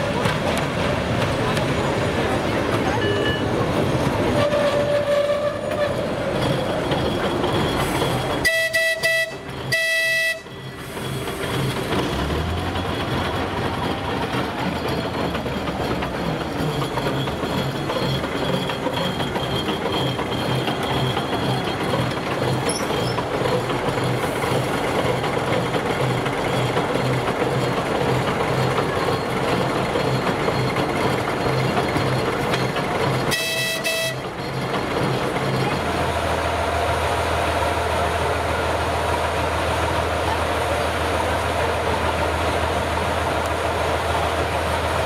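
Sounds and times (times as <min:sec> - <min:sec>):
train running: 0:00.0 - 0:45.0
locomotive horn blasts: 0:08.4 - 0:10.6, 0:33.3 - 0:34.2.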